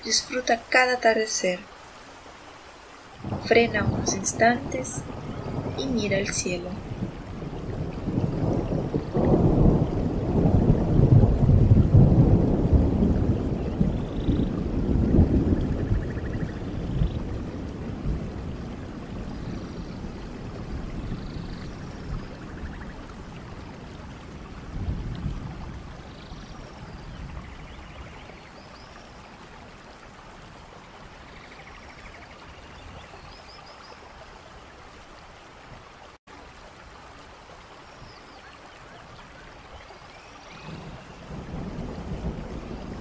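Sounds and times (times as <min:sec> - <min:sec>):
steady rain hiss: 0:00.0 - 0:43.0
low thunder rumbles: 0:03.2 - 0:29.5, 0:40.5 - 0:43.0.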